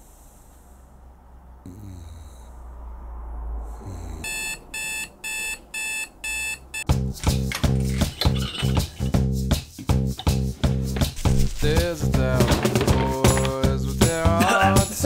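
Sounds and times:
person snoring softly: 1.6s - 2.8s, 3.5s - 4.4s
electronic alarm clock beeping: 4.2s - 7.0s.

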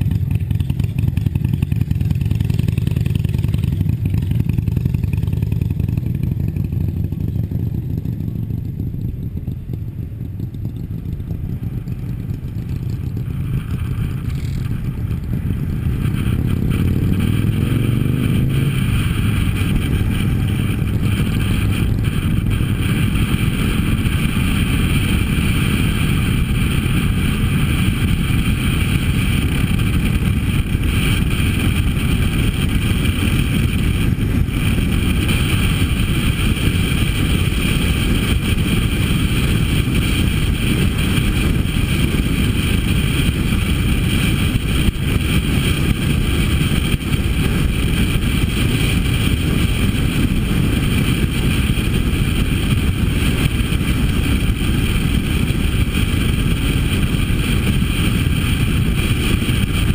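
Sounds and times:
motorcycle engine running: 0.0s - 59.9s
wind rushing over microphone: 1.2s - 59.9s.

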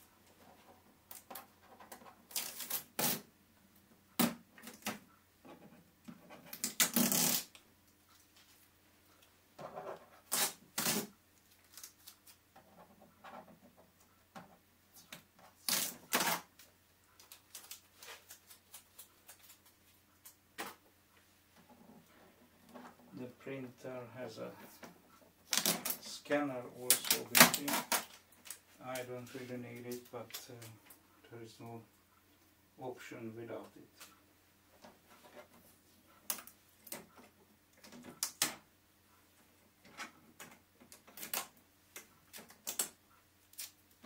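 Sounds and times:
tape tearing off plastic: 2.3s - 3.3s, 6.5s - 7.6s, 10.2s - 12.4s, 15.6s - 20.4s, 25.4s - 26.1s, 26.9s - 28.6s, 40.9s - 41.5s, 42.3s - 43.8s.

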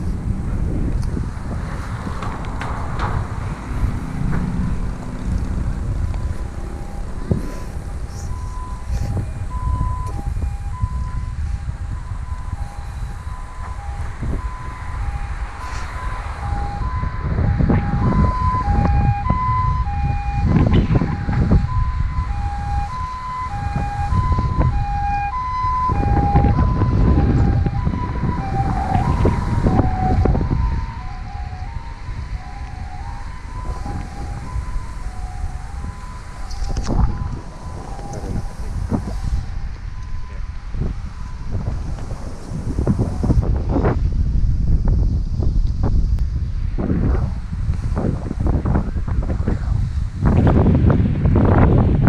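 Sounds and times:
wind rumbling on microphone: 0.0s - 52.0s
two-tone electronic warning signal: 6.0s - 41.8s.

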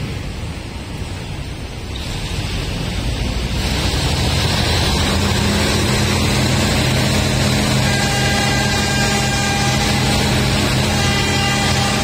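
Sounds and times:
train carriage rushing rumble: 0.0s - 12.0s.

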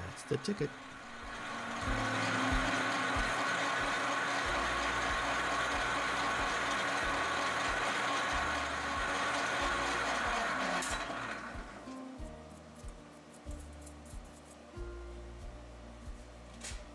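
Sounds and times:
metal lathe whirring: 0.0s - 11.8s.

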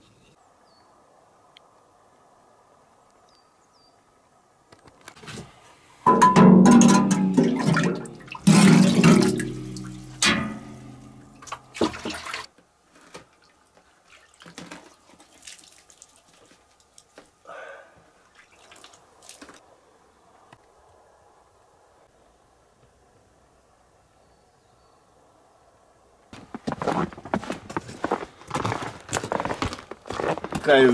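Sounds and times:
water dripping: 6.1s - 12.5s, 13.3s - 17.3s, 18.2s - 19.6s
water pouring and splashing: 6.3s - 12.5s, 13.2s - 17.2s, 18.3s - 19.6s.

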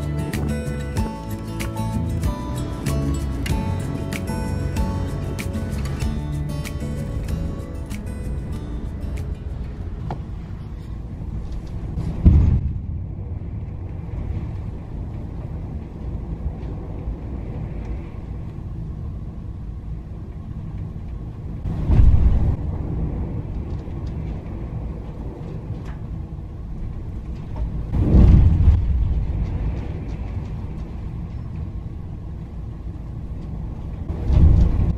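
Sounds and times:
steady low rumble: 0.0s - 34.9s
hull banging into waves: 12.0s - 13.1s.

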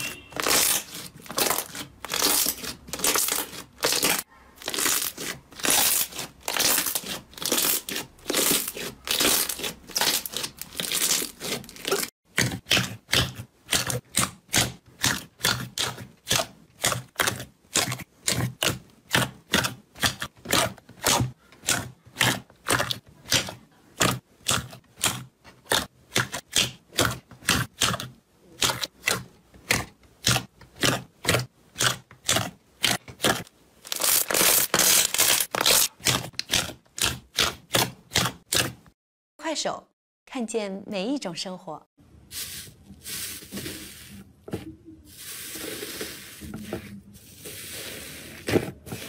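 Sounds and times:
slime crackling and popping: 0.4s - 28.0s, 28.6s - 38.6s.

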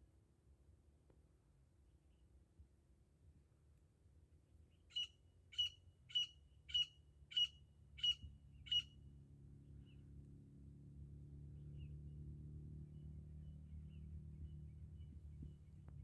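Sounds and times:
bird giving sharp high calls: 4.9s - 8.9s.

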